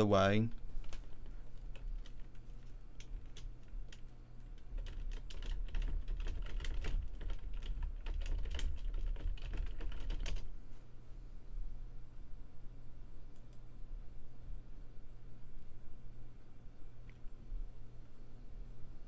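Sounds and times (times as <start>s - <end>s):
low steady hum: 0.0s - 19.0s
computer keyboard typing: 0.4s - 10.5s.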